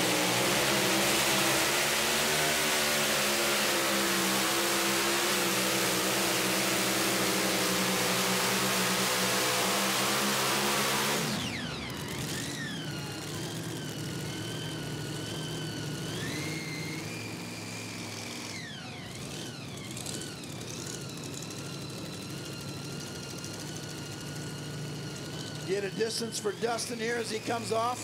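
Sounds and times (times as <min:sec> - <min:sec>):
high-pitched blower whine: 0:00.0 - 0:28.0
supercharged engine at full throttle: 0:00.0 - 0:28.0.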